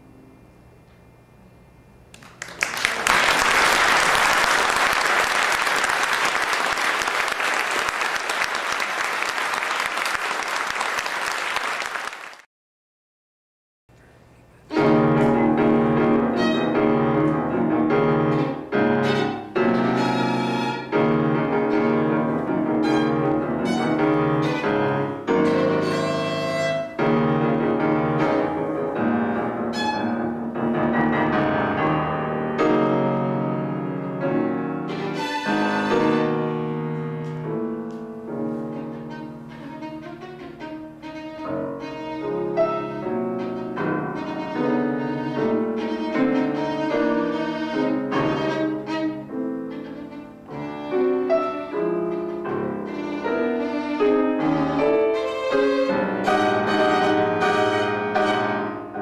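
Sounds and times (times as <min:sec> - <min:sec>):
violin playing: 0:14.7 - 0:30.6, 0:34.4 - 0:37.3, 0:38.4 - 0:59.0
grand piano playing: 0:14.7 - 0:59.0.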